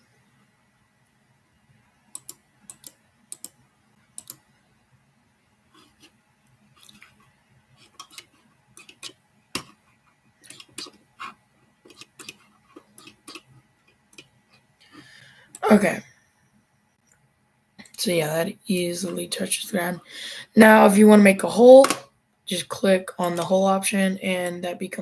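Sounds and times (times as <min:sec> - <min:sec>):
computer mouse clicking: 0:02.1 - 0:03.6, 0:04.2 - 0:04.4, 0:07.9 - 0:09.8.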